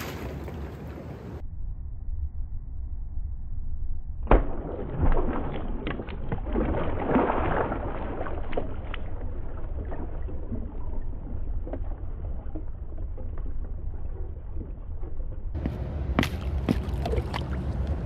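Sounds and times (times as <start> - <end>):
water sloshing: 5.0 - 18.0.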